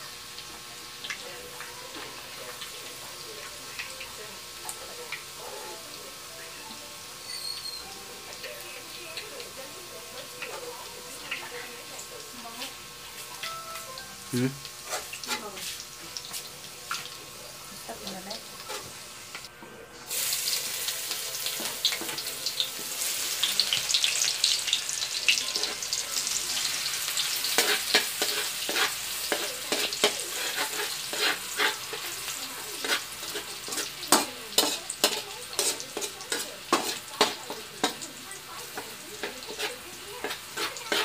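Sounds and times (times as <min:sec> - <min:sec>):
onion sizzling in hot oil: 0:00.0 - 0:41.0
metal ladle scraping a wok: 0:30.3 - 0:32.0, 0:39.2 - 0:41.0.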